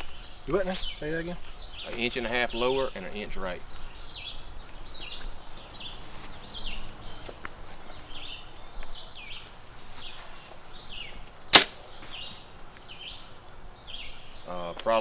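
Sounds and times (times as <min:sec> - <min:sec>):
bow shot crack: 0:11.5 - 0:12.4.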